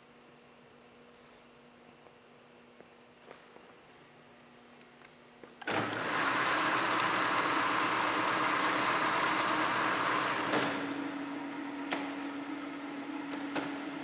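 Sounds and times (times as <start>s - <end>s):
motor hum: 5.6s - 14.0s
lathe headstock running: 5.7s - 14.0s.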